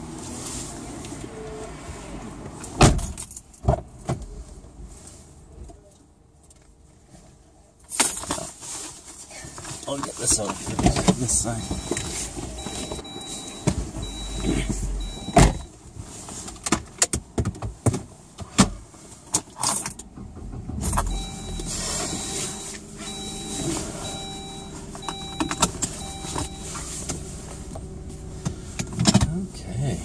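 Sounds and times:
clicks and knocks inside a car: 9.4 - 20.0, 20.6 - 29.6
car warning chime beeping: 11.1 - 15.7, 20.9 - 28.4.

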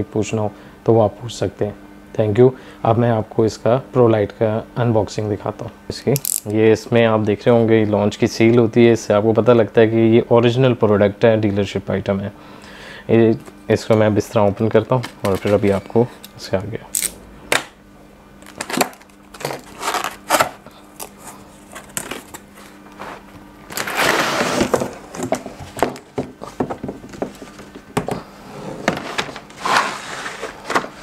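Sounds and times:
cardboard knocking and rustling: 23.8 - 28.2.

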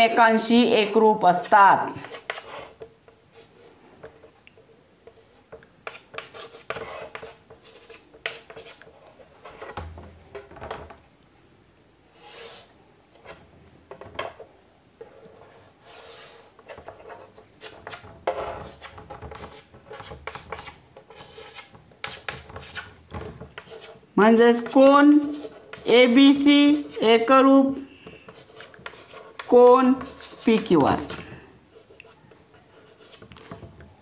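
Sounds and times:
long chalk scrapes: 0.7 - 4.4, 5.0 - 9.9, 12.1 - 13.5, 15.0 - 33.7
chalk scratching on chalkboard: 0.8 - 4.3, 5.1 - 9.9, 12.1 - 13.4, 15.0 - 27.3, 28.0 - 33.6
chalk taps: 1.4 - 10.5, 15.0 - 27.1, 28.0 - 33.7.

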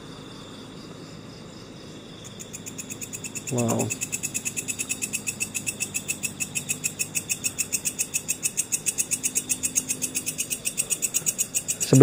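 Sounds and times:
night insects chirping: 0.0 - 12.0.

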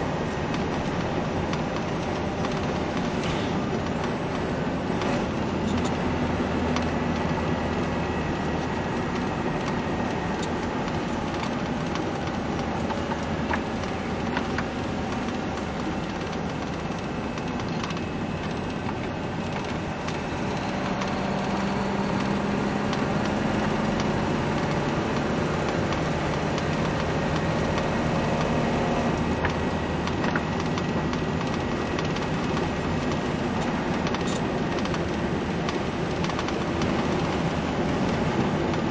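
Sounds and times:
vehicle engine and tyre noise: 0.0 - 38.9
small clicks and creaks: 0.5 - 38.9.

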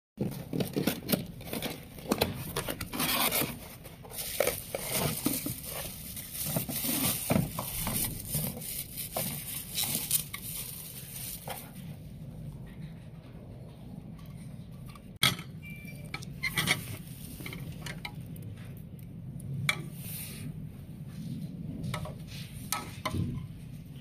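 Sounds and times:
cardboard box being handled: 0.2 - 11.8
plastic bag crinkling: 3.0 - 11.8.

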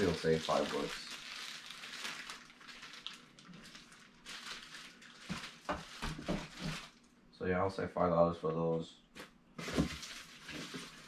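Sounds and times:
packaging rustling: 0.0 - 7.1, 9.6 - 11.0.

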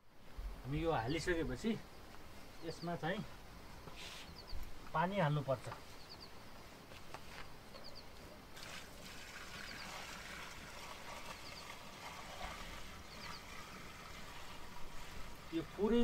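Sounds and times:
bird chirping: 0.9 - 8.4, 11.1 - 14.6
water pouring into plastic drum: 8.6 - 16.0.

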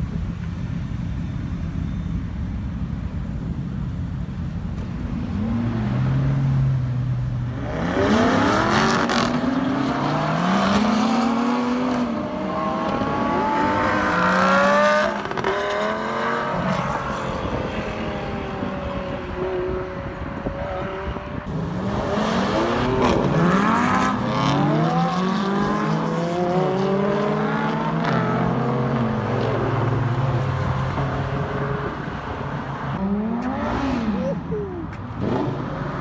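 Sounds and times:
car engine revving: 5.0 - 18.9, 20.8 - 34.3.

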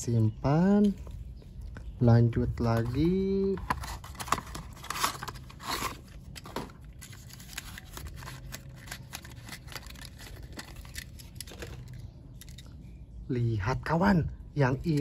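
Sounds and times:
packaging crinkling and rustling: 2.7 - 12.6.

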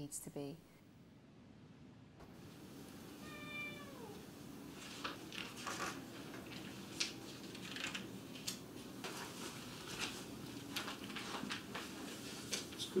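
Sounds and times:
paper crinkles: 4.7 - 13.0
rustling bedclothes and pages: 4.7 - 13.0.

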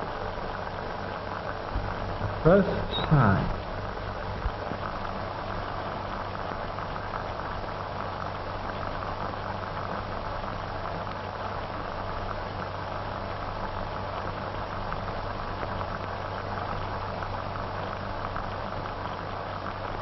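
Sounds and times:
film soundtrack hiss and crackle: 0.0 - 20.0.

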